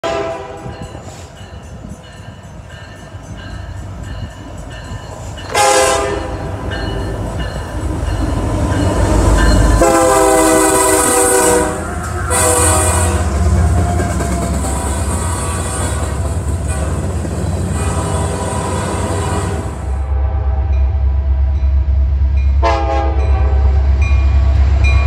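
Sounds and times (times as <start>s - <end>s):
locomotive air horn blasts: 0.0s - 0.8s, 5.5s - 6.5s, 9.8s - 13.6s, 14.6s - 20.9s, 22.6s - 23.9s.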